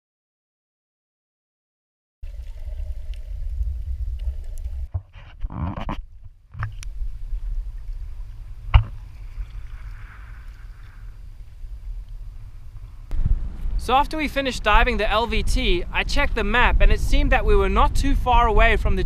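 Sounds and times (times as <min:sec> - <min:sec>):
wind rumbling on microphone: 0:02.3 - 0:19.0
paddle strokes splashing: 0:06.6 - 0:13.0.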